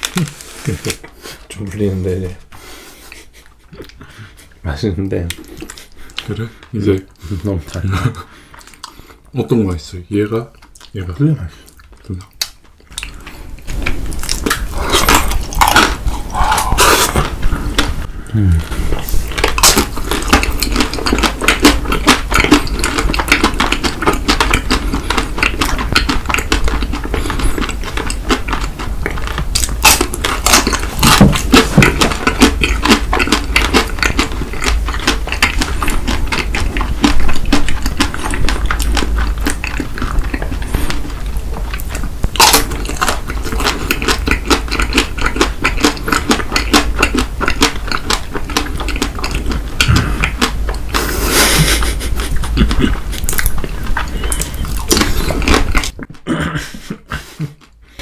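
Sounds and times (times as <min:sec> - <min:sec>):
chewing and crunching candy: 0:00.0 - 0:02.4, 0:03.1 - 0:58.0
wet mouth clicks: 0:48.8 - 0:56.1.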